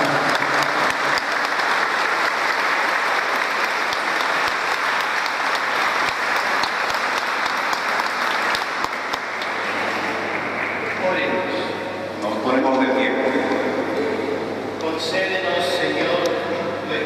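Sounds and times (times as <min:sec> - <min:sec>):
crowd applauding: 0:00.0 - 0:11.7.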